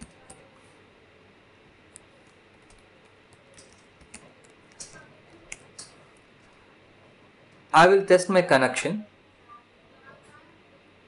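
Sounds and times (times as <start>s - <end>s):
computer keyboard key clicks: 2.0s - 6.0s.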